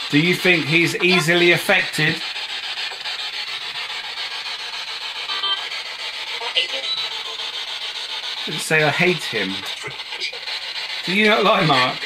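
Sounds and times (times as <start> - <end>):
radio static sweeping channels: 0.0 - 12.0
brief snatches of radio sound: 8.5 - 10.5.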